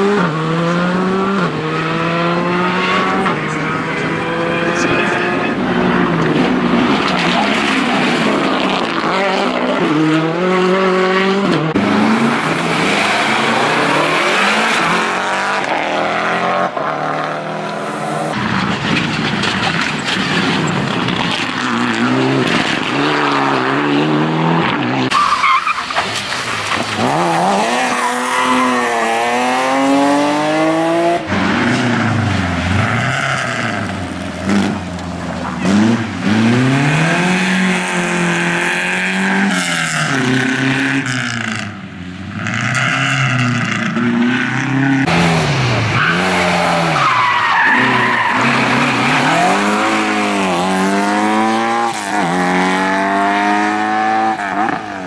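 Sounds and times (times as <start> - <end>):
rally car engines revving: 0.0 - 55.0
tyre squeal: 25.1 - 26.2, 27.7 - 29.0, 46.9 - 50.3.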